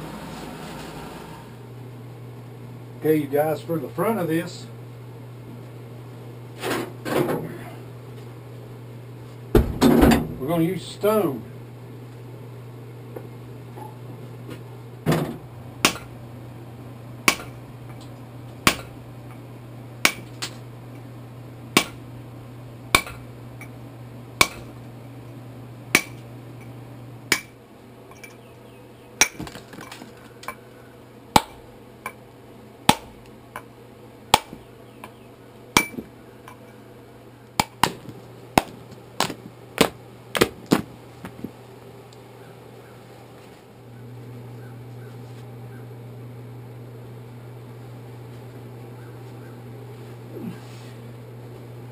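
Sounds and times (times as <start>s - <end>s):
hammer striking a chisel on stone: 20.0s - 20.3s, 21.8s - 22.0s, 23.0s - 23.2s, 24.4s - 24.6s, 26.0s - 26.2s, 27.3s - 27.5s, 35.8s - 36.0s.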